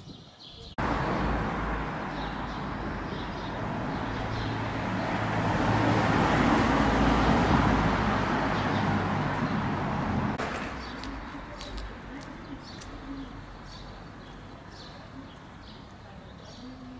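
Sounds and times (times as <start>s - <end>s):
vehicle passing: 0.8s - 12.6s.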